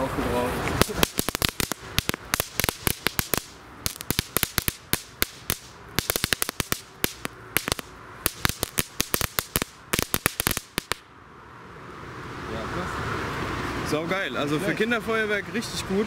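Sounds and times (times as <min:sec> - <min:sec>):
firework crackling: 0:00.6 - 0:11.1.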